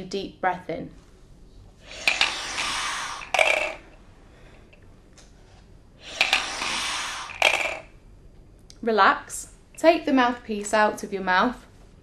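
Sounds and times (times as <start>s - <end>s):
deep breath through tubing: 1.8s - 4.8s, 6.0s - 7.9s.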